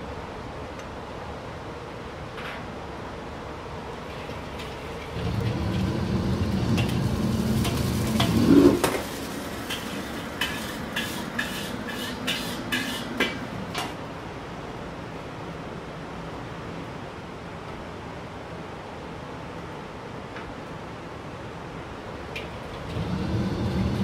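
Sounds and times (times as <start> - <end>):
wok burner roaring: 3.8 - 15.3, 22.0 - 24.0
ladle clanking on wok: 6.7 - 14.0.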